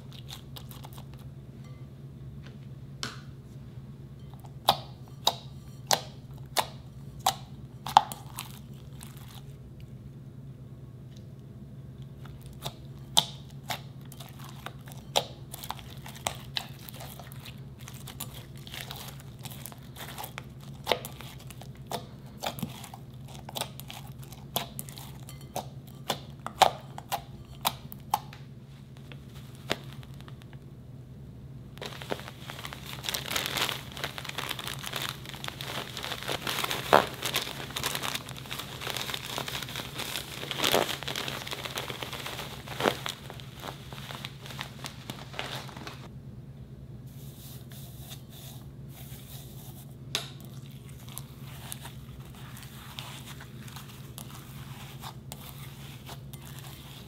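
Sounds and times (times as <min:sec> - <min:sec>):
crinkling rustle of plastic bag: 0:31.8 - 0:46.1.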